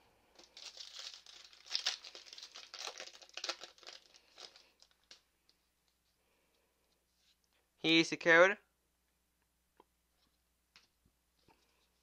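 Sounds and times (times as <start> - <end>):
foil wrapper crinkling and tearing: 0.3 - 5.2.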